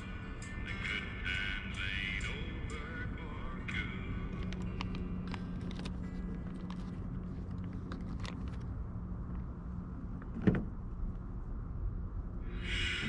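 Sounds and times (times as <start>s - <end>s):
steady low hum: 0.0s - 13.0s
handling clicks of food: 4.3s - 8.8s.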